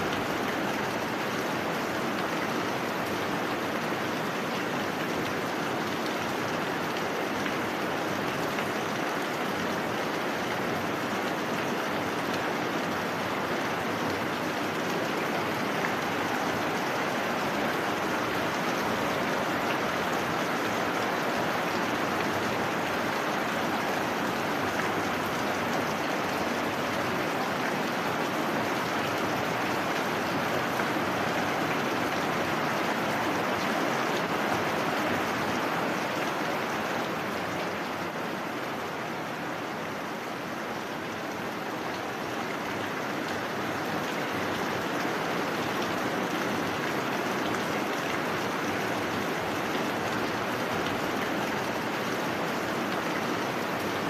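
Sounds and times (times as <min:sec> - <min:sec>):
heavy rain falling: 0:00.0 - 0:54.0.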